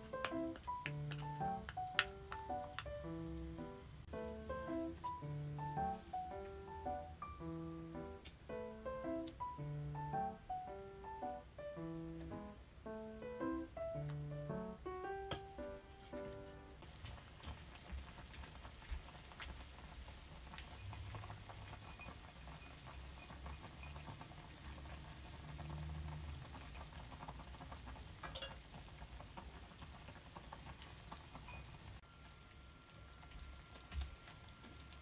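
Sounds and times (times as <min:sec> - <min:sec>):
sauce bubbling in a saucepan: 0:16.8 - 0:35.0.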